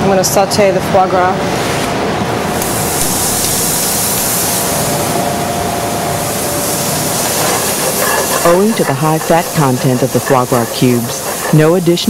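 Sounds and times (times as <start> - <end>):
food sizzling in a pan: 2.6 - 5.2, 6.3 - 12.0.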